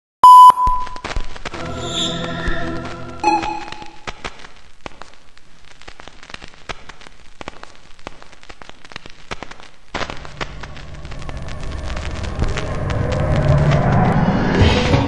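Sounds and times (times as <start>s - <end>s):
crackling clicks: 3.2s - 14.3s.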